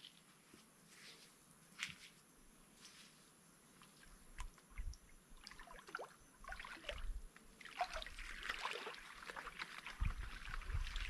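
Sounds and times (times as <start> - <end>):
water splashing and trickling: 4.0 - 11.0.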